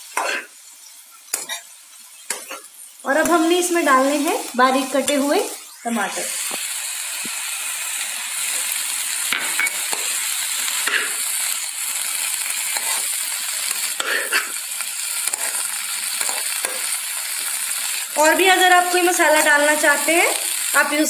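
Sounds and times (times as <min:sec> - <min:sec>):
vegetables sizzling in oil: 0:00.0 - 0:21.0
metal spatula scraping pan: 0:12.7 - 0:13.1.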